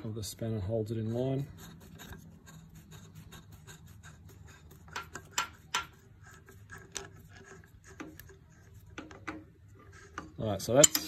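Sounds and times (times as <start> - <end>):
small metal clicks and rubbing: 4.8 - 11.0.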